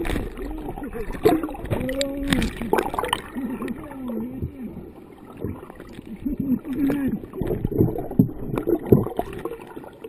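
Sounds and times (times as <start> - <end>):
muffled voices through water: 0.0 - 10.0
water sloshing and gurgling: 0.0 - 10.0.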